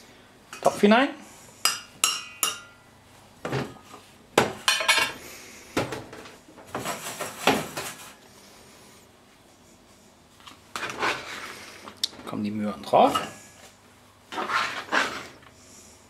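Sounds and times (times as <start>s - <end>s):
saucepans and utensils clinking: 1.7s - 2.9s.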